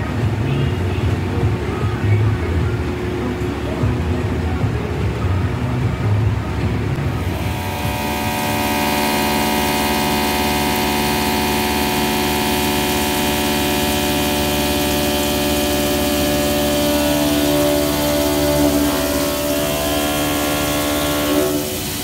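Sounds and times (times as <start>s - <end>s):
milling machine whining: 7.0s - 22.0s
coolant spray hissing: 7.1s - 22.0s.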